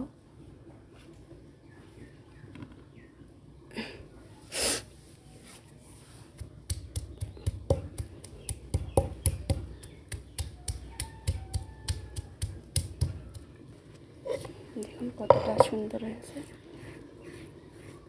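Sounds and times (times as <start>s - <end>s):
stone pounding on grinding stone: 6.4s - 13.4s, 15.3s - 15.8s.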